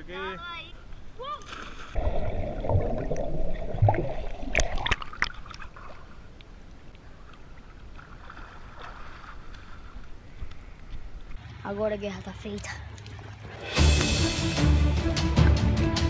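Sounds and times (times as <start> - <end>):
pool water lapping and sloshing: 1.2 - 11.5
water splashes: 1.2 - 11.5
muffled underwater bubbles: 2.0 - 5.3.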